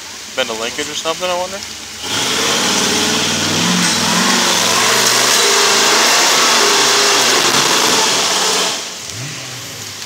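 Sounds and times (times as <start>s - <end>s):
engine revving hard: 2.0s - 9.6s.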